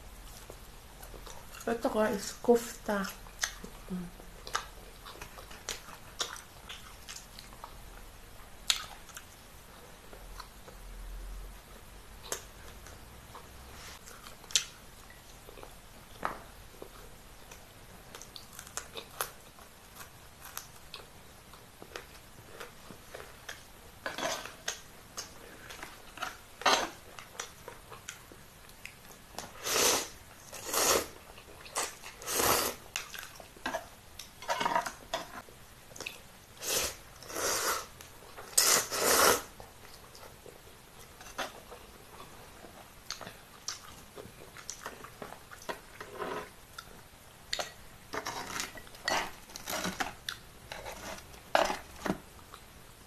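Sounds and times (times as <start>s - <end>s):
chewing: 3.3s - 7.8s, 32.8s - 34.3s, 39.6s - 52.7s
loud noodle slurps: 29.6s - 31.2s, 32.2s - 32.8s, 36.6s - 37.9s, 38.6s - 39.5s.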